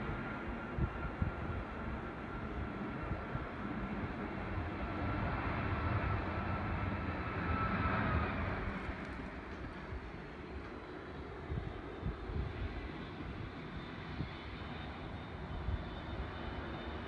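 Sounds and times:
jet engines rumbling and whining: 0.0s - 17.0s.

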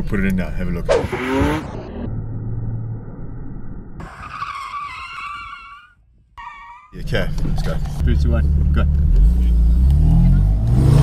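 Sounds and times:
car engine revving: 0.9s - 4.2s, 7.4s - 11.0s
tyres squealing: 4.0s - 7.0s.

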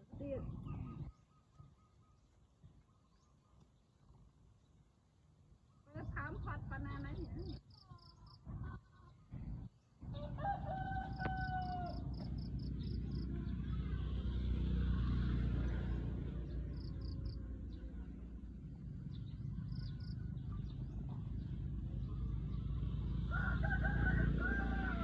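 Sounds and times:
rooster crowing: 10.1s - 12.3s, 23.3s - 25.0s.

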